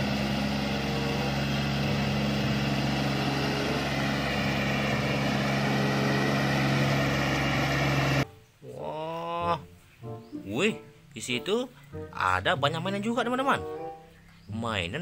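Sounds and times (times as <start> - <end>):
tractor engine droning: 0.0 - 8.2.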